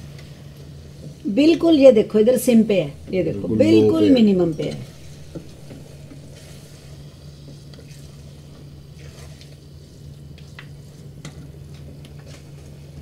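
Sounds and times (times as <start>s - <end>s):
faint sizzle: 0.0s - 13.0s
steady low hum: 0.2s - 9.0s.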